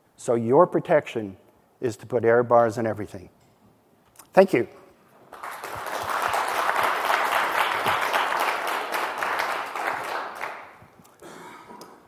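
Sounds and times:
audience applauding: 0:05.3 - 0:10.8.

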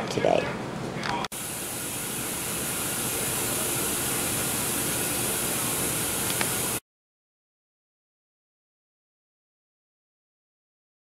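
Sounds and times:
loud hiss: 0:01.3 - 0:06.8
small click: 0:06.2 - 0:06.5.

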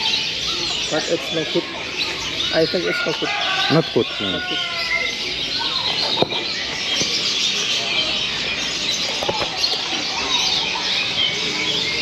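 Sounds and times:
birds chirping and twittering: 0:00.0 - 0:12.0.

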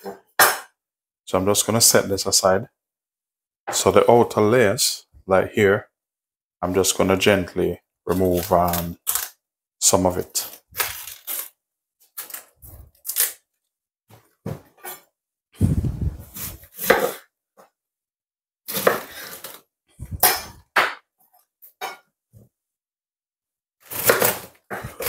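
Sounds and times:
cabbage leaves snapping and tearing: 0:08.1 - 0:09.4, 0:10.4 - 0:13.4
knife crunching through cabbage: 0:08.1 - 0:09.4, 0:10.3 - 0:13.4, 0:18.7 - 0:19.6, 0:23.8 - 0:25.0.

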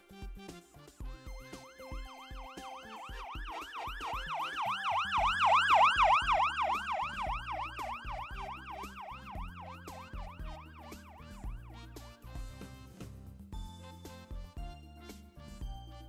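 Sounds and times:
music with bass and beat: 0:00.0 - 0:16.0
emergency siren yelping: 0:01.6 - 0:11.6.

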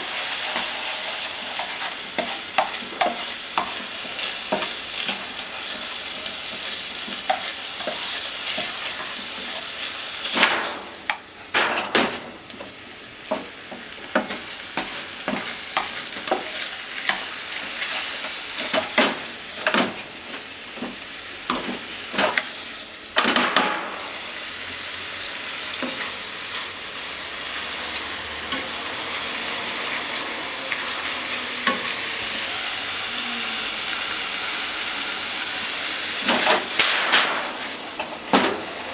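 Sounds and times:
meat sizzling in a frying pan: 0:00.0 - 0:38.9
spatula scraping and knocking pan: 0:00.2 - 0:20.0.

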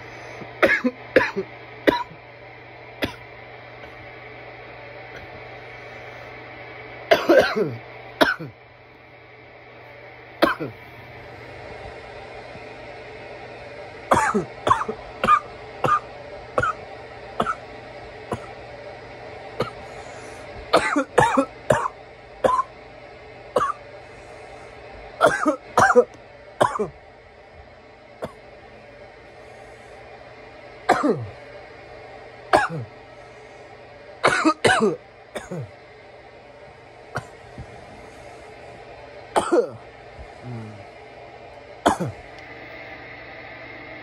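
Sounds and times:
man coughing: 0:00.6 - 0:02.2, 0:07.1 - 0:08.6, 0:10.4 - 0:10.8, 0:14.1 - 0:16.0, 0:18.3 - 0:18.5, 0:20.8 - 0:22.7, 0:25.2 - 0:26.9, 0:30.9 - 0:31.4, 0:32.6 - 0:32.9, 0:34.2 - 0:35.7, 0:37.2 - 0:37.4, 0:39.3 - 0:39.8, 0:41.8 - 0:42.2.

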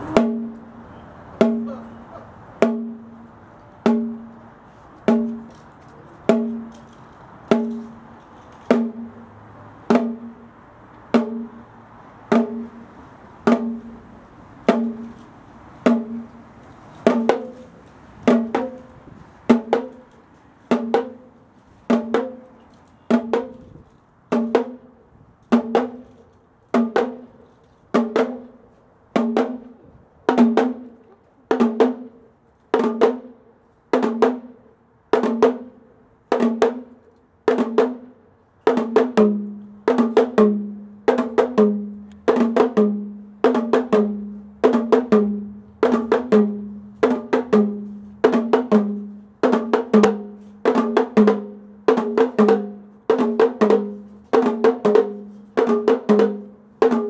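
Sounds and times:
bongos struck with sticks: 0:00.0 - 0:00.7, 0:01.4 - 0:05.6, 0:06.3 - 0:06.8, 0:07.5 - 0:08.1, 0:08.7 - 0:09.3, 0:09.9 - 0:10.5, 0:11.1 - 0:11.7, 0:12.3 - 0:15.2, 0:15.8 - 0:16.4, 0:17.0 - 0:18.9, 0:19.5 - 0:20.1, 0:20.7 - 0:24.9, 0:25.5 - 0:26.1, 0:26.8 - 0:28.6, 0:29.2 - 0:32.2, 0:32.8 - 0:33.4, 0:34.0 - 0:34.6, 0:35.2 - 0:38.1, 0:38.7 - 0:57.0.

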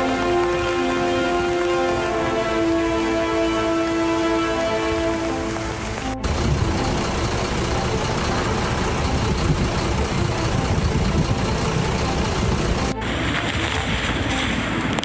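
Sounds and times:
steady rain hiss: 0:00.0 - 0:10.8, 0:11.5 - 0:15.0
traffic on wet road: 0:00.0 - 0:15.0
gusty wind rumble: 0:04.8 - 0:15.0.

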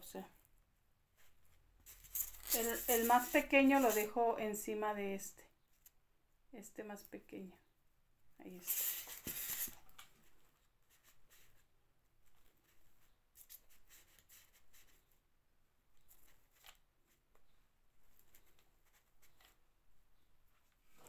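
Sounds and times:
small clicks and rustles: 0:08.7 - 0:11.6, 0:15.9 - 0:19.6.

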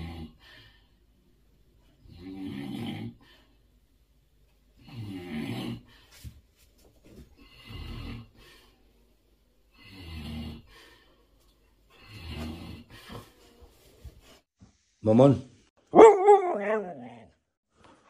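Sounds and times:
man snoring: 0:00.0 - 0:00.4, 0:02.0 - 0:03.2, 0:04.8 - 0:05.9, 0:07.4 - 0:08.4, 0:09.7 - 0:10.9, 0:12.0 - 0:13.1.

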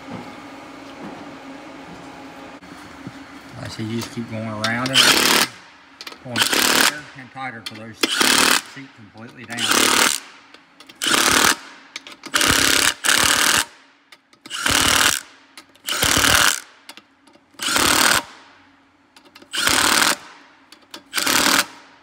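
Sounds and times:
impact gun hammering bolts: 0:07.6 - 0:18.3.

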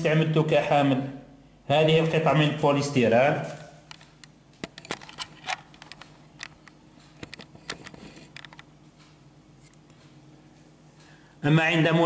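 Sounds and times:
steady low hum: 0:00.0 - 0:12.0
clicks of handling plastic tester: 0:03.9 - 0:10.1.

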